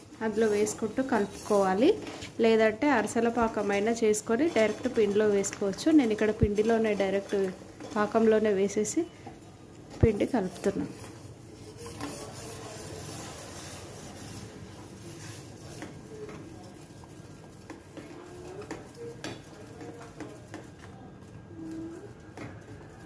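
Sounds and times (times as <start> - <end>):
ladle scraping in pot: 0.3 - 9.0, 9.9 - 16.4.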